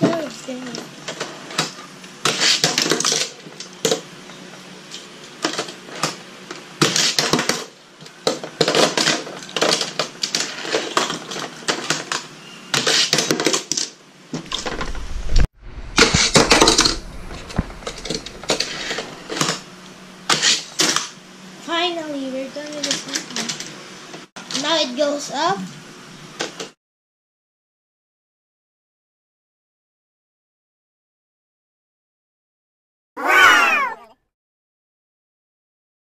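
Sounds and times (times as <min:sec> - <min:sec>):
toy cars clattering on plastic track: 0:00.1 - 0:04.0, 0:06.8 - 0:14.8, 0:22.7 - 0:23.7.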